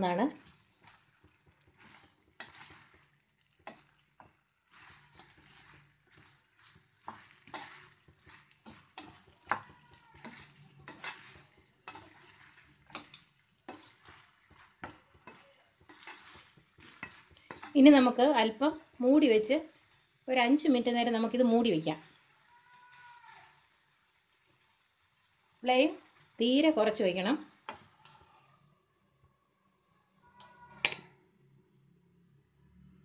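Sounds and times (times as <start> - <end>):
spatula scraping frying pan: 0.0 - 20.3, 27.4 - 28.4
faint sizzle of curry: 0.0 - 33.0.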